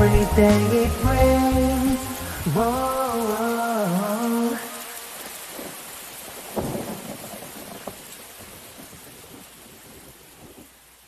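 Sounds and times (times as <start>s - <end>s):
steady rain: 0.0s - 11.0s
low rumble of thunder: 5.6s - 10.8s.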